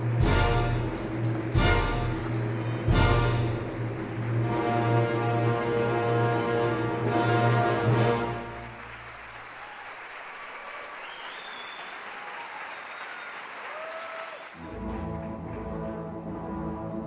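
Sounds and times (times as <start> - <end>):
music: 0.0 - 9.3, 14.6 - 17.0
audience applauding: 0.0 - 16.1.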